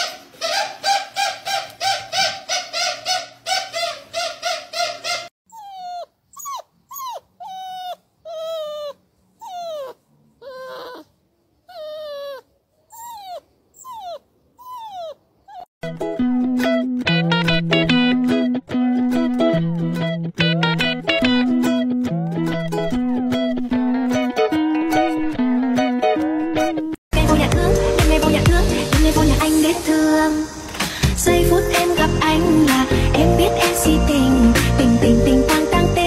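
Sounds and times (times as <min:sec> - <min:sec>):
dog whimpering: 0:00.0 - 0:15.7
dog whining: 0:00.0 - 0:15.7.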